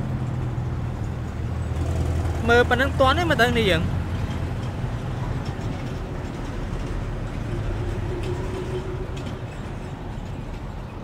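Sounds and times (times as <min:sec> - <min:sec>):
steady low rumbling: 0:03.9 - 0:11.0.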